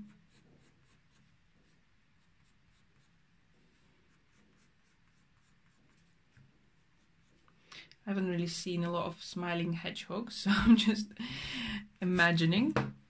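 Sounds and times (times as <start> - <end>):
pencil strokes on rough paper: 0.0 - 7.6.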